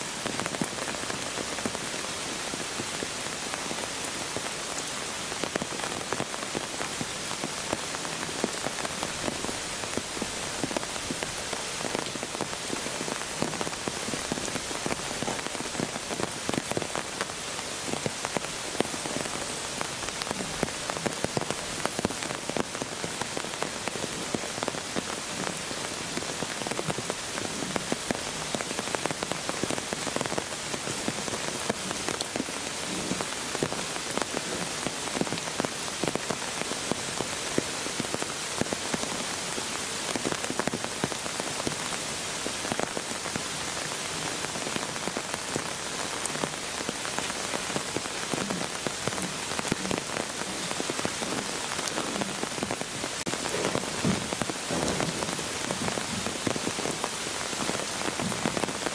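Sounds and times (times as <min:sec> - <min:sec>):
steady rain falling: 0:00.0 - 0:58.9.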